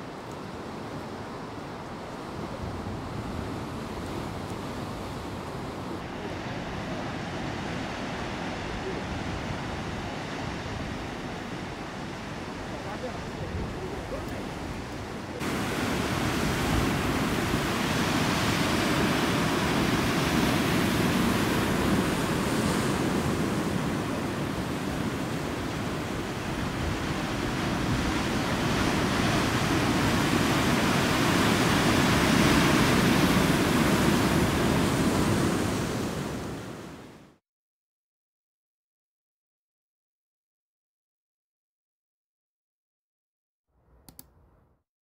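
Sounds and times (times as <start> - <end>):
ocean surf breaking on rocks: 0.0 - 37.2.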